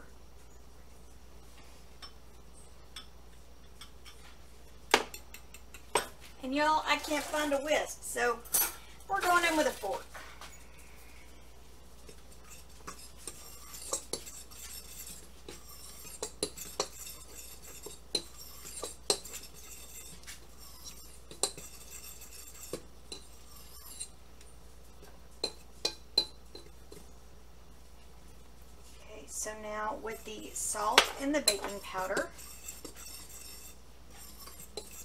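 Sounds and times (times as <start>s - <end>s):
fork clinking and scraping bowl: 12.1s - 24.2s, 25.4s - 27.0s, 30.1s - 35.0s.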